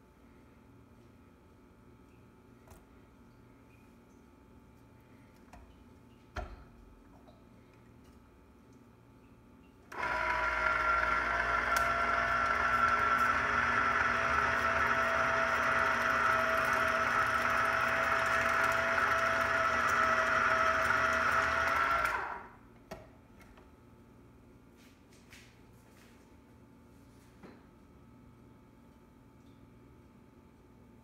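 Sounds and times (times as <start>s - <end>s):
juicer motor whirring: 9.9s - 22.6s.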